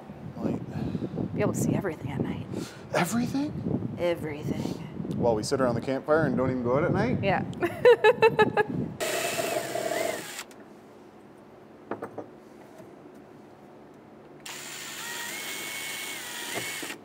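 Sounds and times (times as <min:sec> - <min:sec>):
power drill whining: 0:09.0 - 0:10.6, 0:14.4 - 0:17.0.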